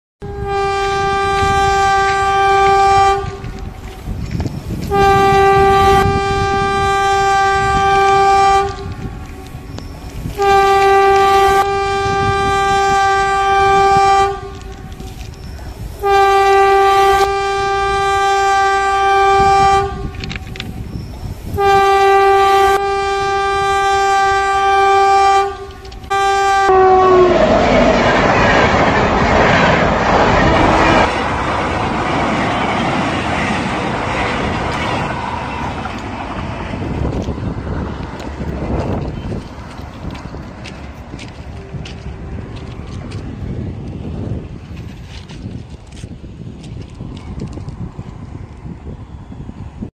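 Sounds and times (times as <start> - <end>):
locomotive horn blasts: 0.2 - 3.7, 4.8 - 27.5, 41.2 - 43.2
train wheels clattering on rails: 27.4 - 48.7.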